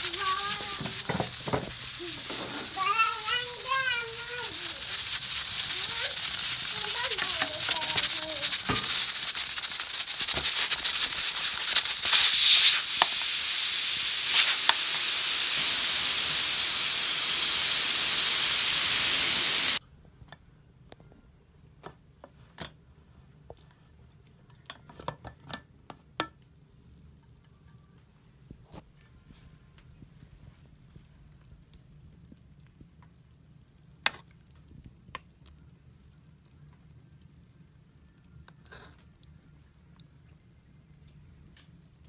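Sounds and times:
pressure cooker steam hiss: 0:00.0 - 0:19.8.

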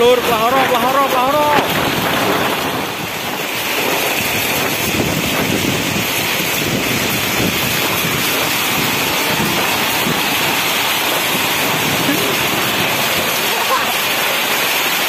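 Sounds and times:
heavy rain on plastic sheeting: 0:00.0 - 0:15.0
wind blowing across microphone: 0:00.0 - 0:15.0.

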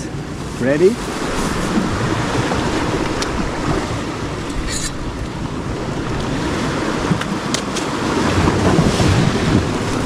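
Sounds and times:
surf: 0:00.0 - 0:10.0
wind buffeting microphone: 0:00.0 - 0:10.0.

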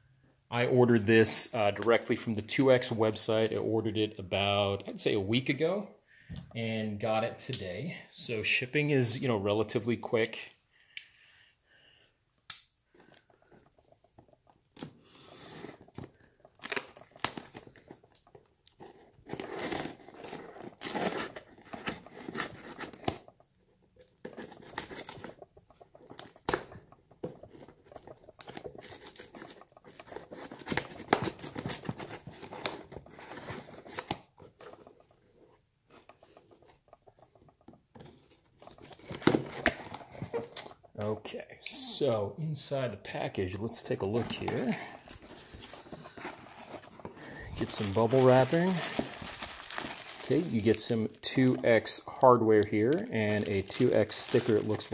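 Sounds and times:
tape tearing away: 0:18.8 - 0:23.4.

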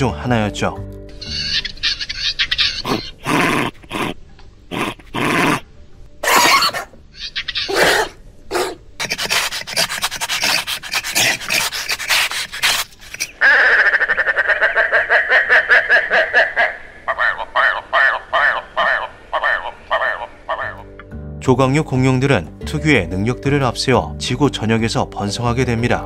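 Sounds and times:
breathy hisses and snorts: 0:07.7 - 0:13.4.

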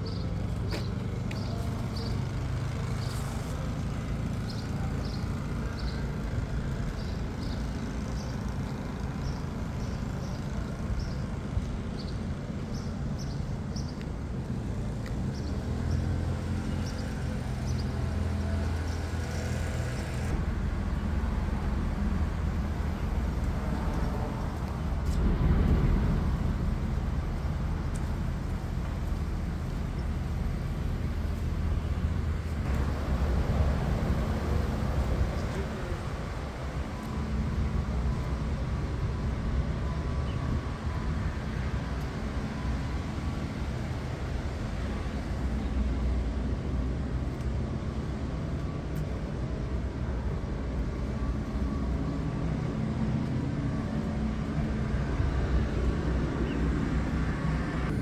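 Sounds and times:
traffic hum: 0:00.0 - 0:58.0
vehicle passing: 0:15.2 - 0:47.2.

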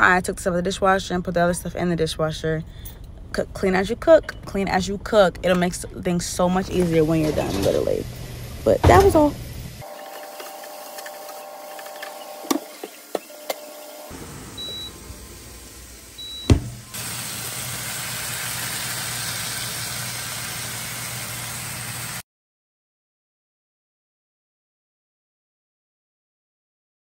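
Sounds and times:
air fryer fan whirring: 0:05.4 - 0:22.2
air fryer beeps: 0:09.8 - 0:15.1, 0:16.1 - 0:18.9.

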